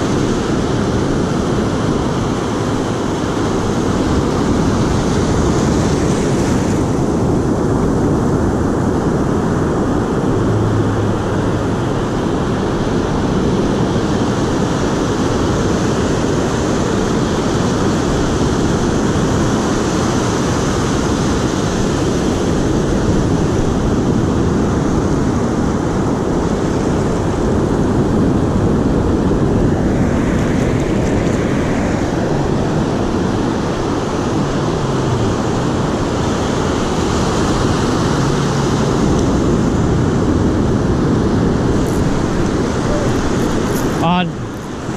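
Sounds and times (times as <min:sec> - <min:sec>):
surf washing up beach: 0:00.0 - 0:44.9
wind buffeting microphone: 0:00.0 - 0:44.9.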